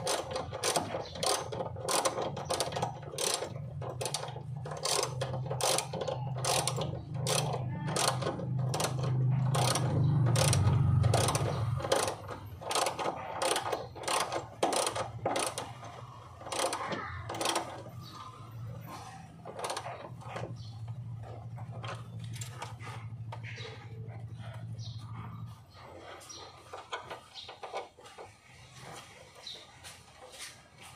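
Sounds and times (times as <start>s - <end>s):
ratchet wrench clicking: 0.0s - 18.2s, 19.4s - 20.2s.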